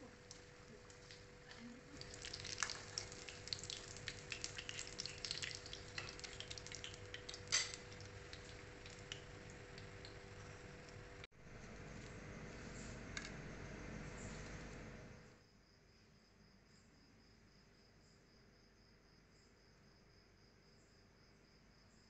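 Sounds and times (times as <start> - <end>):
food deep-frying in oil: 0.0 - 11.3
faint steady hum: 0.0 - 22.0.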